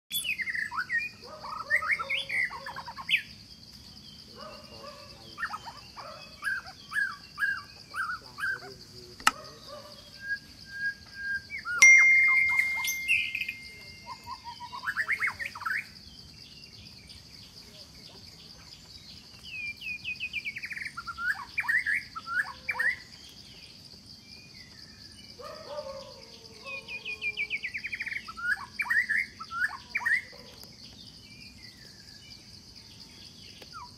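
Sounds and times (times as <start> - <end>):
birds chirping and calling: 0.1 - 23.8, 24.4 - 33.9
sharp clicks: 9.2 - 9.4.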